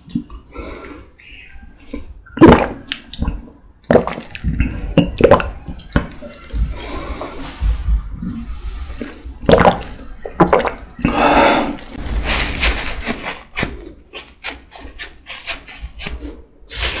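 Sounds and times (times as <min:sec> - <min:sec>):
person gulping a drink: 0:00.0 - 0:01.2, 0:02.0 - 0:07.4, 0:09.0 - 0:12.0
paper napkin rustling: 0:11.9 - 0:17.0.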